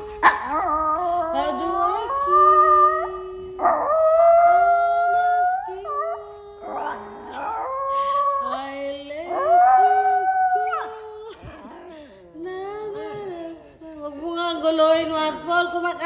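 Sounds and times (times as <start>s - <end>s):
dog howling: 0.1s - 11.4s.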